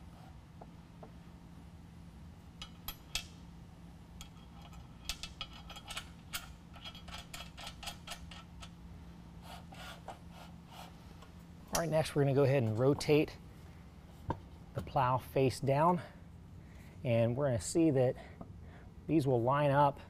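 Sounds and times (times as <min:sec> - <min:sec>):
low steady hum: 0:00.0 - 0:20.0
metal clicks and scrapes: 0:04.2 - 0:08.8.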